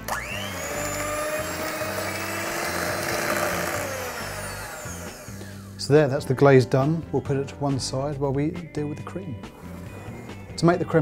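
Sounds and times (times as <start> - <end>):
electric hand mixer whining: 0.0 - 6.0.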